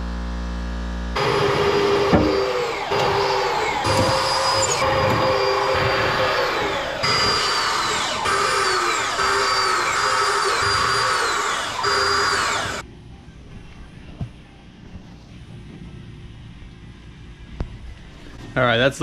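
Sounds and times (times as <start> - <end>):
power drill driving screws into steel: 1.2 - 12.8.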